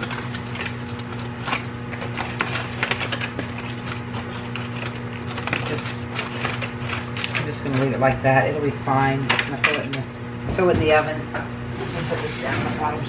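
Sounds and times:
aluminium foil crinkling: 0.0 - 9.8
low electrical hum: 0.0 - 13.0.

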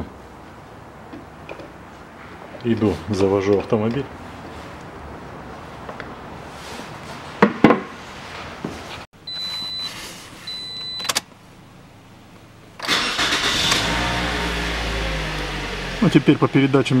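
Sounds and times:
short high beeps: 9.3 - 11.1
car engine starting and idling: 12.6 - 17.0.

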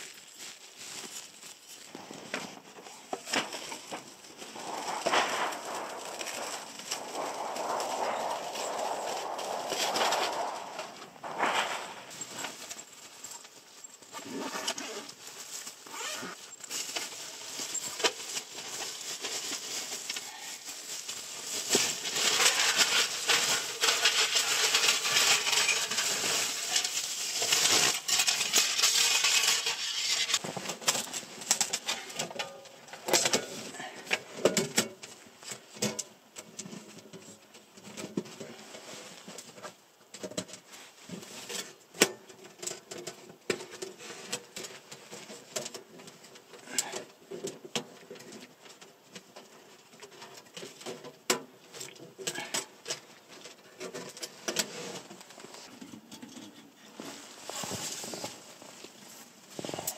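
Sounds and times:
fabric and stuff sack rustling: 0.0 - 32.1, 56.8 - 59.9
metal panels clicking and clinking: 3.2 - 13.6.

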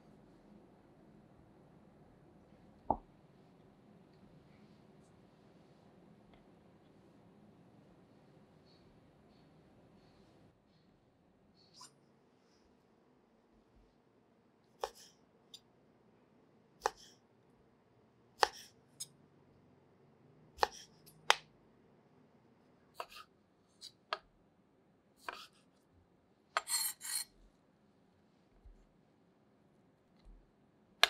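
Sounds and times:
knife rough strokes: 26.6 - 27.3.

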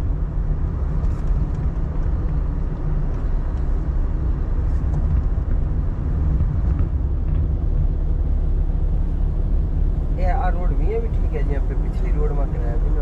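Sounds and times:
vehicle rumbling along road: 0.0 - 13.0.

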